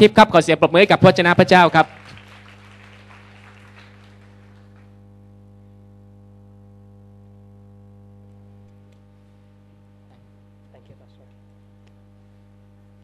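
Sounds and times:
low electrical mains hum: 0:00.0 - 0:13.0
applause: 0:01.2 - 0:05.0.

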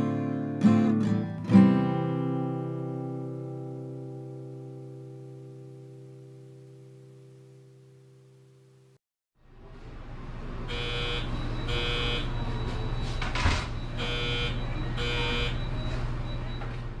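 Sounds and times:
electronic beeping bursts: 0:10.7 - 0:16.7.

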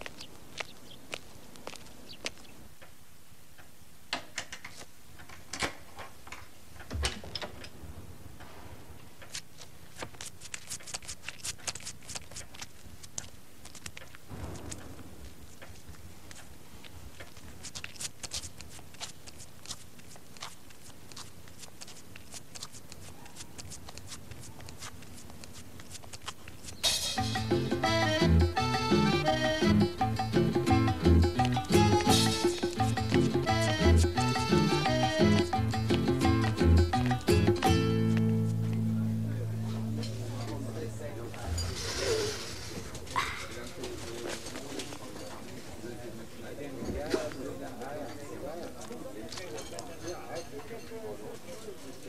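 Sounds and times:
cartoon creeping footsteps: 0:00.0 - 0:03.8, 0:08.4 - 0:38.9
heavy dull thump: 0:14.3 - 0:15.5
tape hiss: 0:26.7 - 0:43.1.

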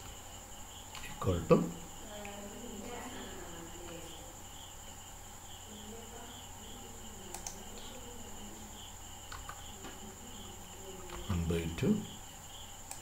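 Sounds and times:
faint pulsing chirping: 0:00.0 - 0:13.0
computer mouse click: 0:07.3 - 0:07.8, 0:09.3 - 0:10.0.

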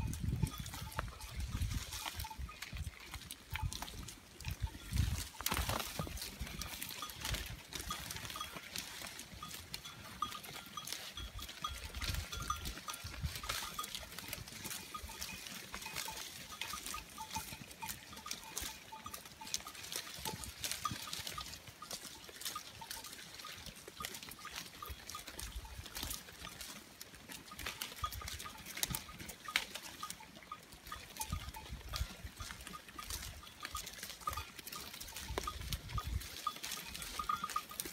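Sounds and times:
small livestock bells tinkling: 0:00.0 - 0:37.9
leaves rustling and twigs snapping: 0:05.0 - 0:09.2.

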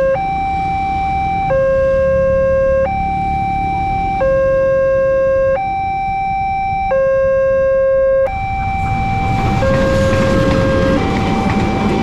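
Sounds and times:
two-tone crossing alarm: 0:00.0 - 0:12.0
train rumble: 0:08.3 - 0:12.0.

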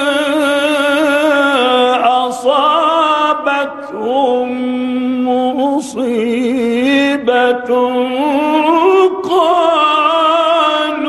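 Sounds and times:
man reciting melodically: 0:00.0 - 0:11.0.

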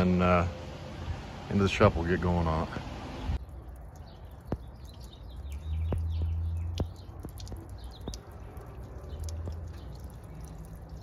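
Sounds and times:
birds chirping: 0:00.0 - 0:11.0
liquid dripping onto metal deck: 0:03.4 - 0:11.0.

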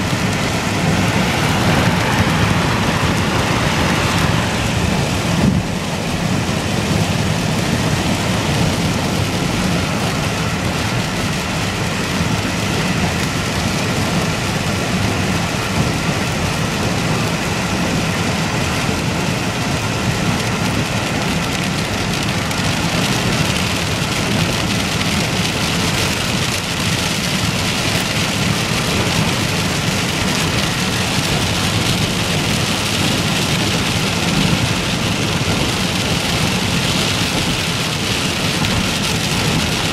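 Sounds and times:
heavy rain on a car: 0:00.0 - 0:39.9
tyre and road noise: 0:00.0 - 0:39.9.

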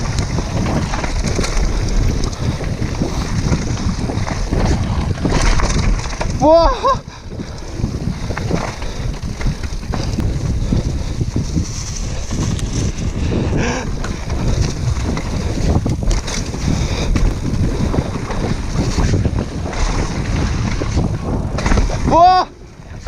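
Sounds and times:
mountain bike rattling on trail: 0:00.0 - 0:23.0
wind buffeting microphone: 0:00.0 - 0:23.0
bike knocks from bumps: 0:20.8 - 0:22.2.

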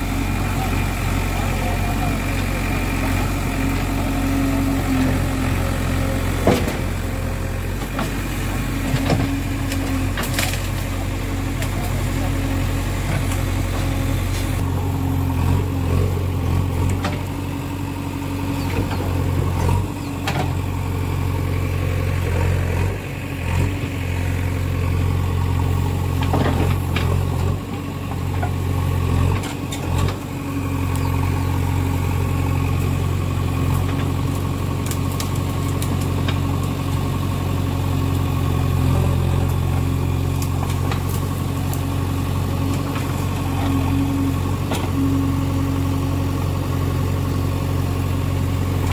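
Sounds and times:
diesel engine under load: 0:00.0 - 0:48.9
engine knocks: 0:05.0 - 0:14.6.

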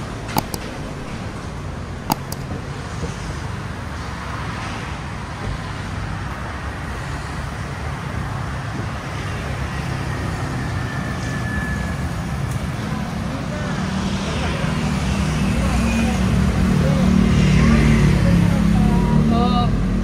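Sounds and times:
cars passing: 0:00.0 - 0:20.0
sharp click: 0:00.3 - 0:01.4, 0:02.0 - 0:02.6.

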